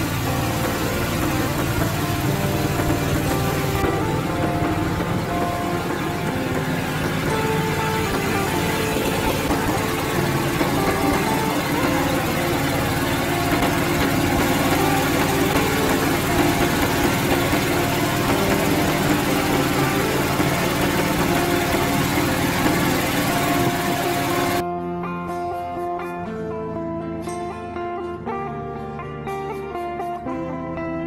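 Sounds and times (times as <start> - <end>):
rushing noise: 0.0 - 24.6
small engine running: 0.0 - 24.6.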